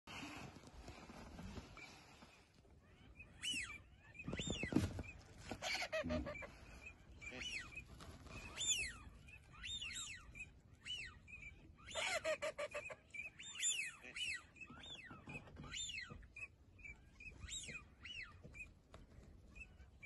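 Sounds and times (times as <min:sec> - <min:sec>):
ducks calling: 0:05.5 - 0:07.9.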